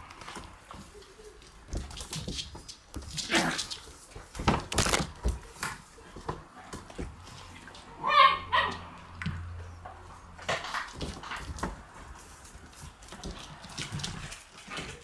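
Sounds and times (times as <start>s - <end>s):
puppies scuffling and snuffling: 0.0s - 15.0s
puppy yelp: 8.0s - 8.8s.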